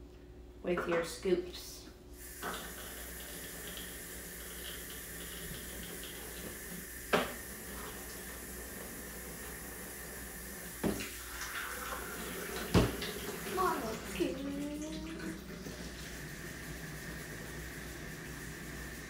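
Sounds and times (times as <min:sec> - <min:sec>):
room noise hiss: 0:00.0 - 0:19.0.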